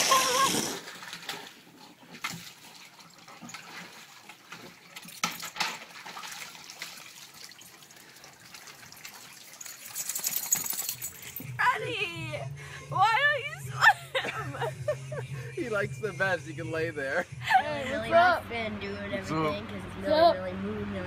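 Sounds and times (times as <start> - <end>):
water splashing and dripping: 0.0 - 11.3.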